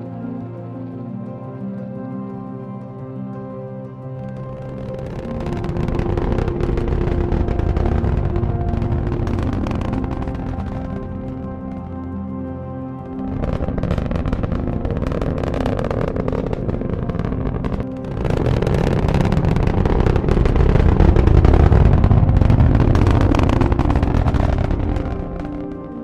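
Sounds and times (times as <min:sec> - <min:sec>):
rocket engine roar: 0:04.8 - 0:12.0, 0:13.2 - 0:26.0.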